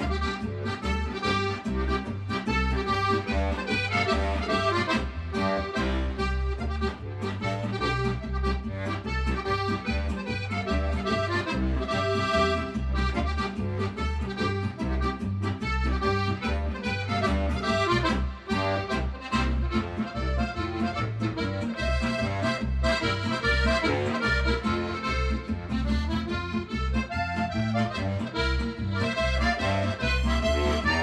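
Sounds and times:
button accordion folk tune: 0:00.0 - 0:31.0.

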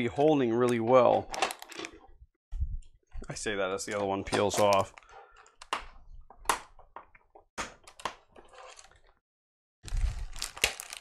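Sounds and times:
plastic parts clicking and snapping: 0:00.6 - 0:02.1, 0:03.2 - 0:08.3.

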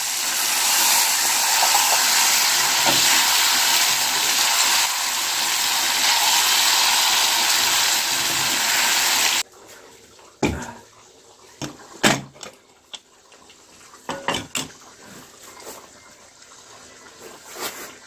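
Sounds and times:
metal pots clanking: 0:14.0 - 0:14.8.

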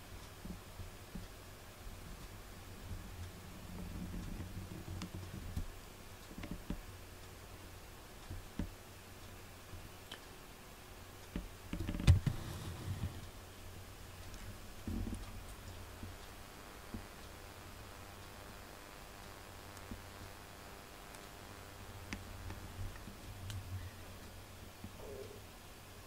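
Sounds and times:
low hum: 0:12.2 - 0:26.0.

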